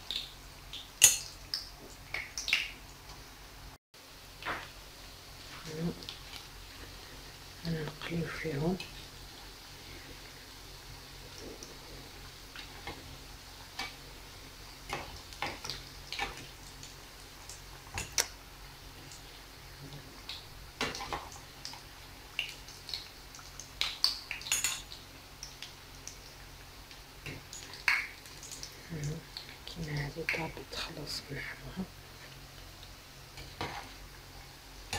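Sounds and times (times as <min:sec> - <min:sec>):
oil sizzling: 0:00.0 - 0:34.9.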